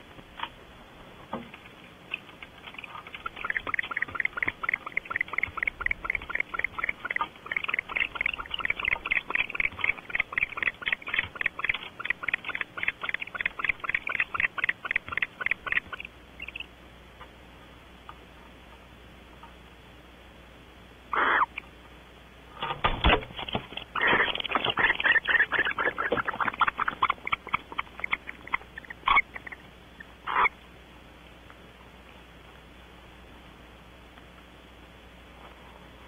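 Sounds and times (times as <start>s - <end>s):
owl calling: 2.7s - 16.7s, 21.1s - 21.6s, 23.9s - 30.6s.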